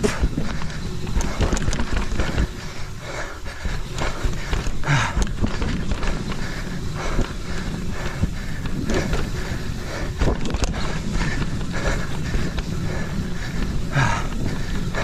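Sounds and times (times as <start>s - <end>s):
bike frame rattles: 0.0s - 15.0s
bike tyre rumble on dirt: 0.0s - 15.0s
rider breathing hard: 0.0s - 15.0s
wind on microphone: 3.6s - 15.0s.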